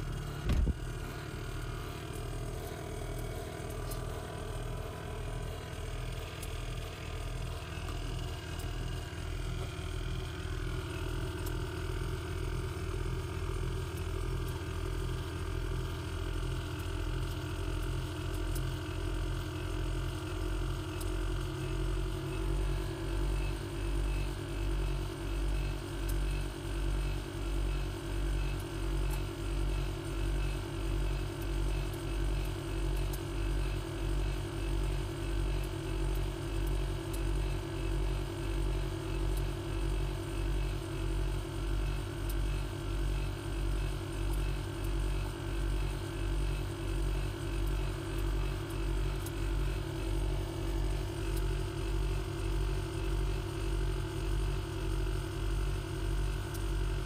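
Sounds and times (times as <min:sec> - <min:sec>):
bass pulse: 0:00.0 - 0:01.2.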